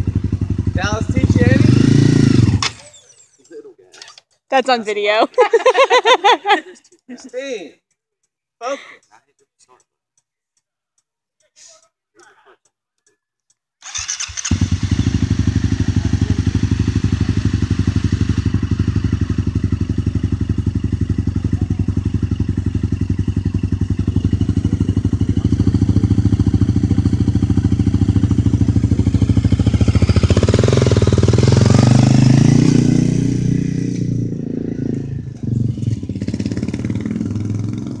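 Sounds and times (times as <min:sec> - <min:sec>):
motorcycle engine idling: 0:00.0 - 0:02.6, 0:13.9 - 0:38.0
motorcycle revving and riding off: 0:00.0 - 0:03.0, 0:13.8 - 0:38.0.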